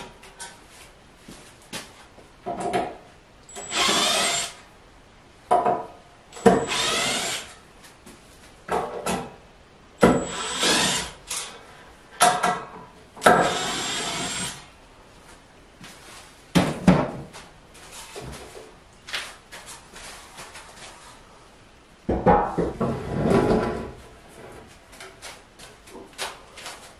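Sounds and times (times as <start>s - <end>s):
power drill driving screws: 3.5s - 4.6s, 6.4s - 7.6s, 10.0s - 11.5s, 13.3s - 14.6s.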